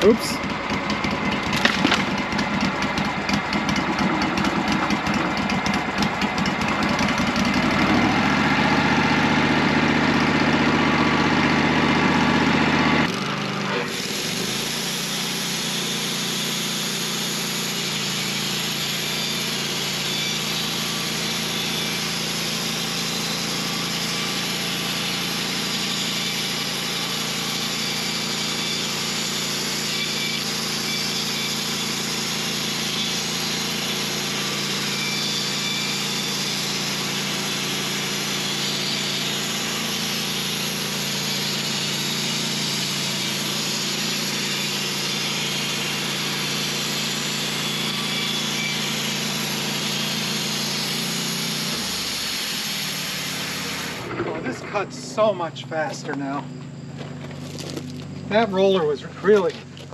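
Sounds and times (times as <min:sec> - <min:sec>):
band sawmill engine running: 0:00.0 - 0:59.9
saw blade hissing: 0:13.8 - 0:56.5.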